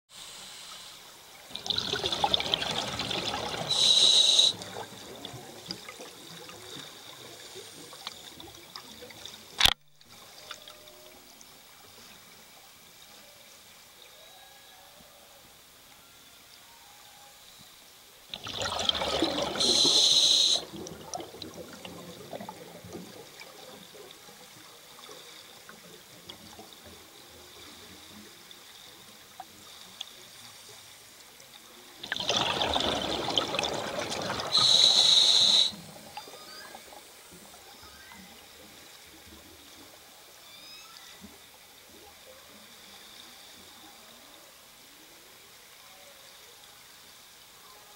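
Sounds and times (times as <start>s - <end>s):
regulator inhalation hiss: 0.1s - 1.4s, 3.7s - 4.8s, 19.5s - 20.8s, 34.4s - 36.1s
faint underwater crackling: 0.1s - 14.2s, 17.6s - 47.6s
exhaled bubbles gushing: 1.5s - 9.6s, 18.3s - 27.1s, 32.0s - 37.1s.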